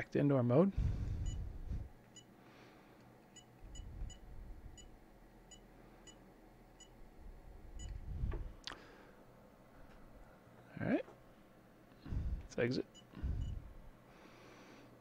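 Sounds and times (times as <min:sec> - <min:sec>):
swooping sound with low thump: 0:07.8 - 0:08.6.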